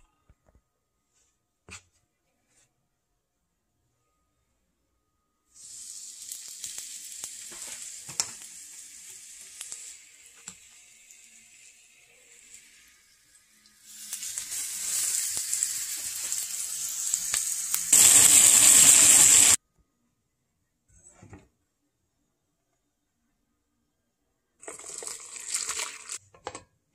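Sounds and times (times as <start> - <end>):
chicken sizzling in hot oil: 5.6 - 19.6.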